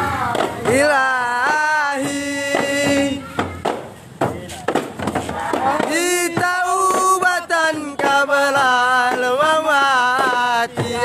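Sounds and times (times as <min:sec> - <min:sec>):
voices singing devotional song: 0:00.0 - 0:11.0
sharp knocks: 0:00.2 - 0:07.3.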